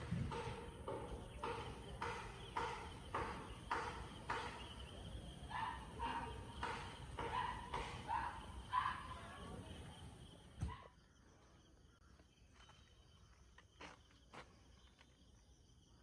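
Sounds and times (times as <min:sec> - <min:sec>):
distant dog barking: 0:05.4 - 0:09.6.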